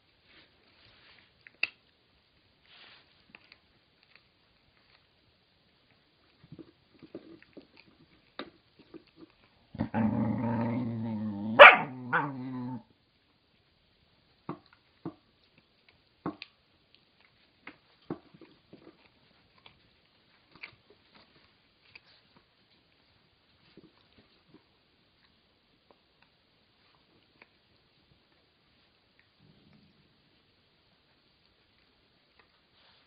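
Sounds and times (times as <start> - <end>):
dog gnawing a chew: 0.3 - 12.6, 14.3 - 33.0
dog growling: 9.7 - 12.9
dog barking: 11.6 - 12.3.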